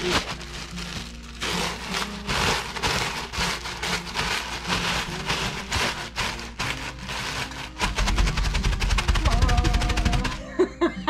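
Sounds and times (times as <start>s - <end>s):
chips crunching in plastic bag: 0.0s - 10.4s.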